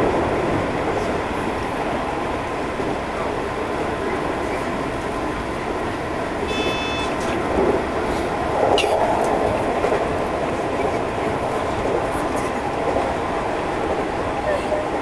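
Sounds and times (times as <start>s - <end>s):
train wheels rumbling on rail: 0.0s - 15.0s
brief high tone: 6.5s - 7.3s.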